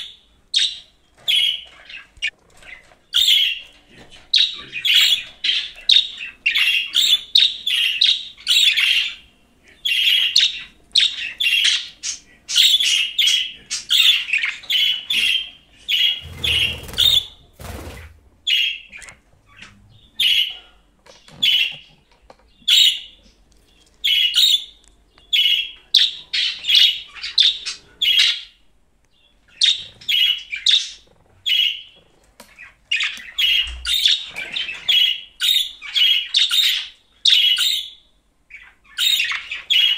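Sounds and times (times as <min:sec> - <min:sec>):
budgerigar chirping and warbling: 0:04.4 - 0:17.8, 0:18.5 - 0:20.6, 0:24.0 - 0:28.6, 0:29.5 - 0:32.0, 0:32.6 - 0:39.9.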